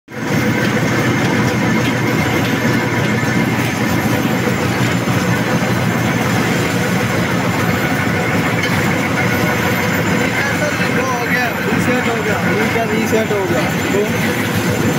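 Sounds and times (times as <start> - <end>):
printing press mechanical din: 0.1 - 14.9.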